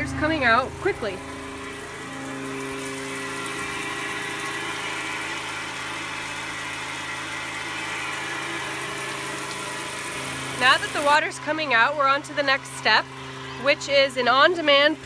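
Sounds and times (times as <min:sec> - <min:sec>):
electric water pump humming: 0:00.0 - 0:15.0
water pouring onto ground: 0:00.9 - 0:11.3.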